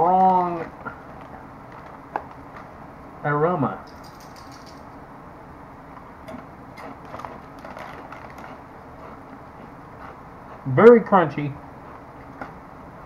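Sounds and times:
person chewing crunchy chip: 0:06.8 - 0:10.7.

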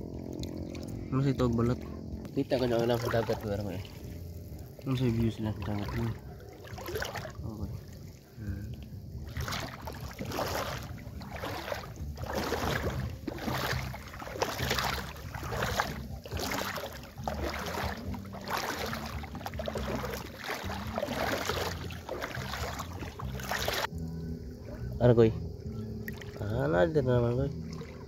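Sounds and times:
footsteps splashing in water: 0:00.2 - 0:01.0, 0:01.6 - 0:04.9, 0:05.5 - 0:08.3, 0:09.2 - 0:23.9, 0:27.6 - 0:28.0.

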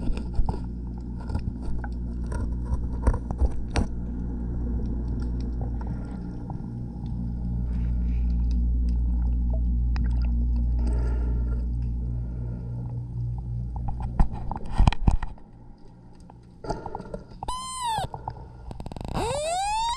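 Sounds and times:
low machinery hum underwater: 0:00.0 - 0:19.9
short rising and falling whine: 0:17.4 - 0:18.1, 0:18.9 - 0:19.9.

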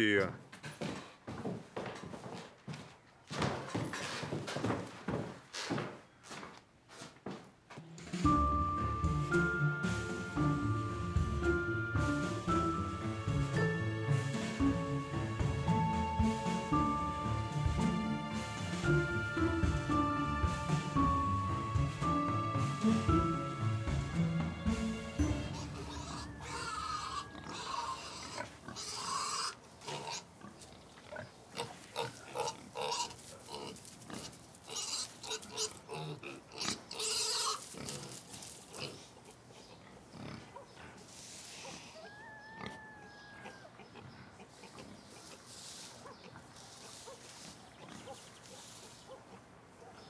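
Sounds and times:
pig grunting and snuffling: 0:25.3 - 0:42.0, 0:43.4 - 0:49.5
thin high call: 0:25.5 - 0:28.0
straw rustling: 0:25.5 - 0:36.0, 0:37.4 - 0:39.3, 0:41.0 - 0:41.9, 0:44.5 - 0:49.4.

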